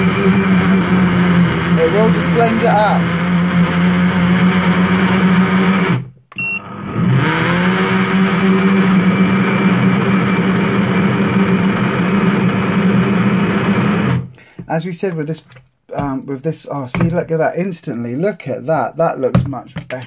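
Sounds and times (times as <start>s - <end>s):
blender motor running: 0.0s - 14.3s
short beep: 6.3s - 6.7s.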